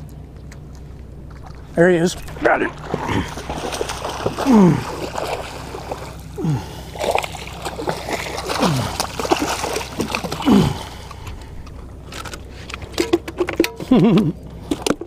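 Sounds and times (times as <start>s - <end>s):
fish splashing in water: 0.4s - 11.7s.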